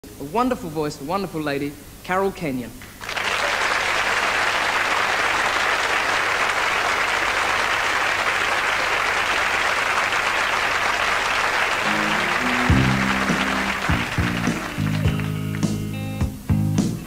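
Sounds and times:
studio audience applauding: 3.0s - 16.0s
musical intro with low notes: 11.7s - 17.0s.

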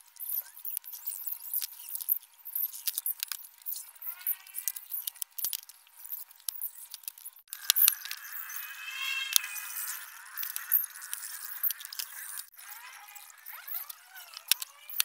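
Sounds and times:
short squeaky rising sound: 7.5s - 15.0s.

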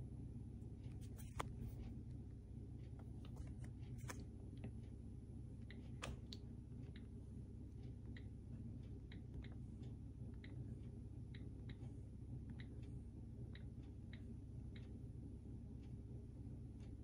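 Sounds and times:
low room hum: 0.0s - 17.0s
touchscreen keyboard ticks: 5.6s - 17.0s.

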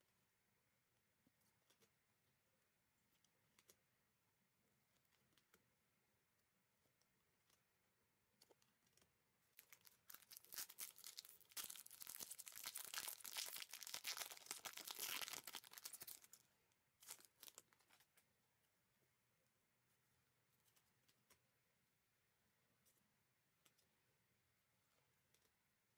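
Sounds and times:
card pack wrapper tearing: 9.6s - 16.3s.

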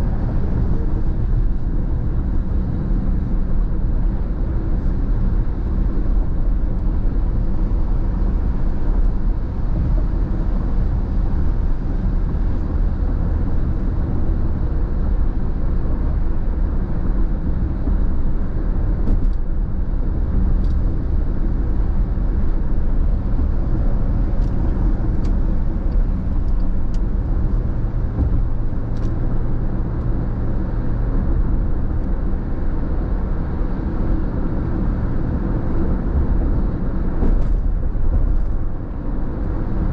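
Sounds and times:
car road noise: 0.0s - 39.9s.

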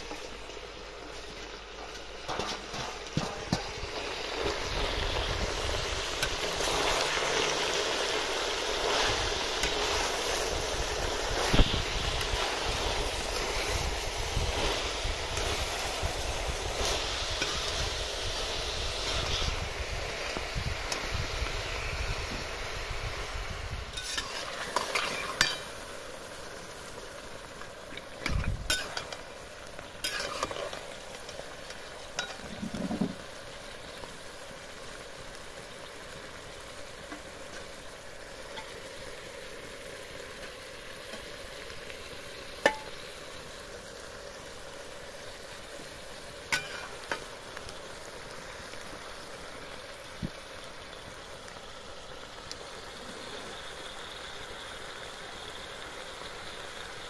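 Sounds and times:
curry sizzling and bubbling in a wok: 0.0s - 57.0s
metal spatula scraping a wok: 1.8s - 4.4s, 23.9s - 25.8s, 28.2s - 29.3s, 30.0s - 31.4s, 46.6s - 47.2s.

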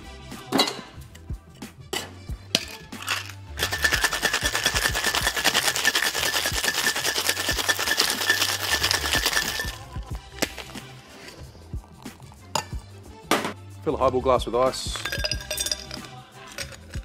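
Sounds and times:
metal tins knocking: 1.9s - 10.8s, 14.8s - 17.0s
ice rattling in cocktail shaker: 2.6s - 10.9s, 14.8s - 17.0s.

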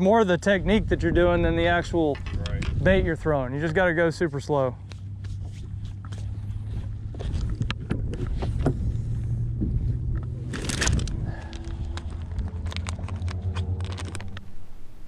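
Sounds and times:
steady low rumble: 0.0s - 15.0s
plastic bag crinkling: 10.4s - 14.5s
compartment opening: 10.4s - 14.6s.

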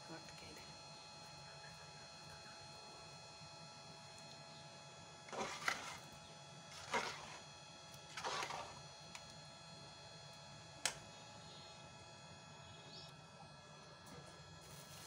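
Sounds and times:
faint steady hum: 0.0s - 15.0s
utensils scraping dishes: 5.3s - 6.0s, 6.7s - 7.4s, 8.1s - 8.8s.

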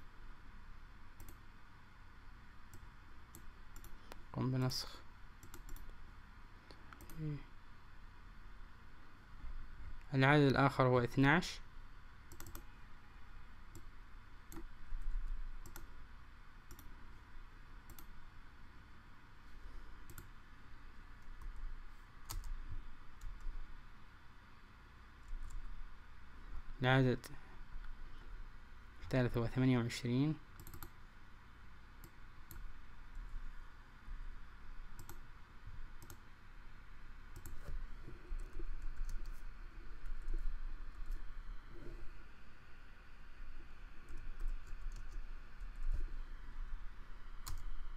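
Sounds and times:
low steady hum: 0.0s - 47.9s
computer mouse clicking: 1.2s - 1.4s, 2.7s - 4.7s, 5.4s - 5.9s, 6.7s - 7.2s, 12.3s - 12.7s, 14.5s - 15.9s, 16.7s - 16.9s, 17.8s - 18.2s, 20.0s - 20.3s, 22.2s - 22.6s, 25.2s - 25.6s, 30.6s - 31.0s, 32.0s - 32.7s, 34.9s - 35.2s, 36.0s - 36.2s, 37.3s - 37.8s, 38.4s - 39.4s, 44.0s - 46.0s, 47.4s - 47.7s.

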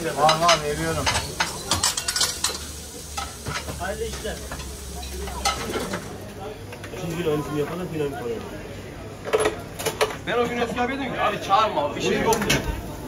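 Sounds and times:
metal utensils clattering: 0.0s - 6.2s
food sizzling: 0.0s - 7.8s.

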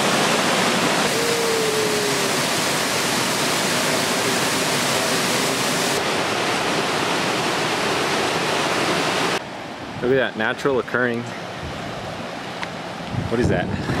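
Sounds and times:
water rushing over rocks: 0.0s - 10.8s.

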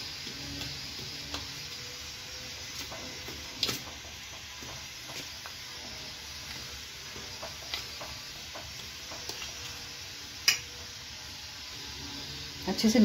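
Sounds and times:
flour mixture scraping and rustling: 2.5s - 9.9s.

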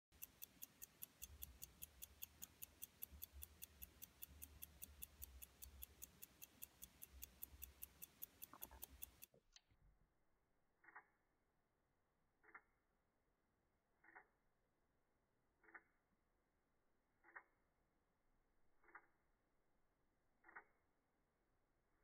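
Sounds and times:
watch ticking faintly: 0.1s - 9.4s, 17.2s - 17.5s, 18.8s - 19.1s, 20.4s - 20.7s.

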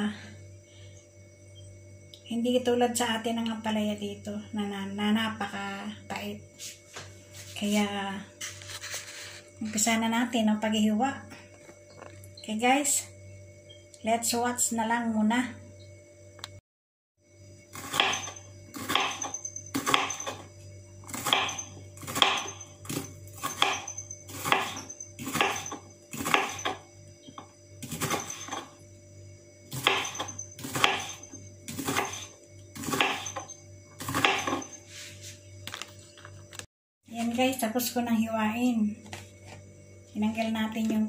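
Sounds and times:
faint steady hum: 0.0s - 16.6s
knife cutting on wooden board: 21.1s - 26.8s, 29.7s - 35.1s.

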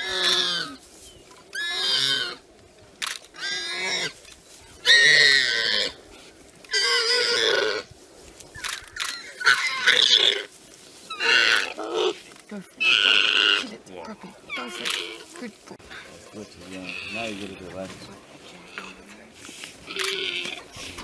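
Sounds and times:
warthog squealing: 0.0s - 0.8s, 1.5s - 2.4s, 3.3s - 4.2s, 4.8s - 6.0s, 6.7s - 7.9s, 8.6s - 10.5s, 11.1s - 12.2s, 12.8s - 19.1s, 19.8s - 21.0s.

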